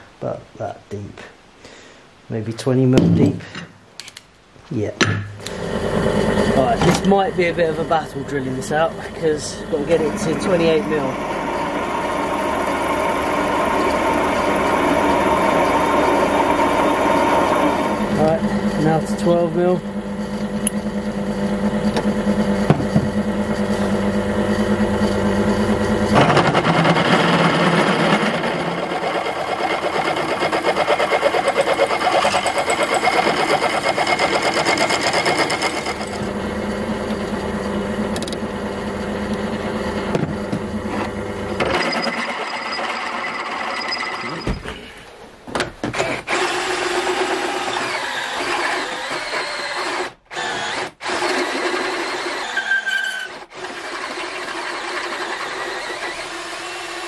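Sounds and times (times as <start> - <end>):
drill motor running: 5.4 - 44.6, 46.0 - 57.0
drill bit cutting steel: 5.5 - 21.0, 23.4 - 36.4, 40.9 - 44.5, 46.0 - 57.0
cordless drill running: 5.5 - 44.4, 46.0 - 57.0.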